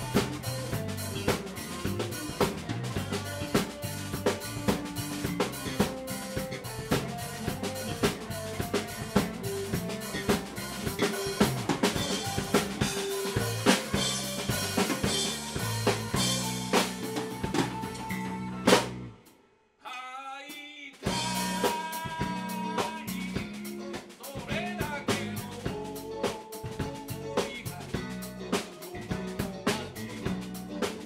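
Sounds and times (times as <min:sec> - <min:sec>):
rock band playing: 0:00.0 - 0:19.3, 0:21.0 - 0:31.0.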